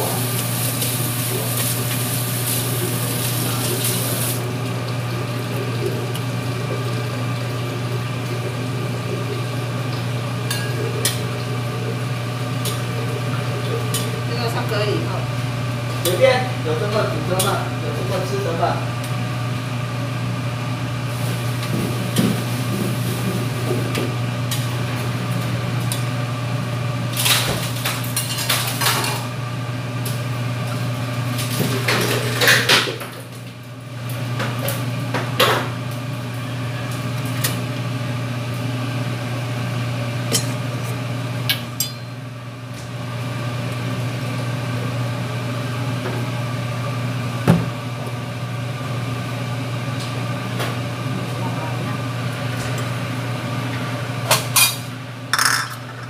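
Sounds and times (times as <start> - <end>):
utensils clattering on metal pots: 54.6 - 56.0.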